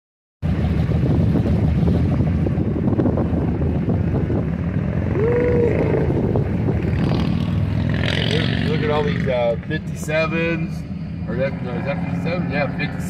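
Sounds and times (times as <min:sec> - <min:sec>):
vehicle engines idling: 0:00.4 - 0:13.0
wind buffeting microphone: 0:00.5 - 0:09.0.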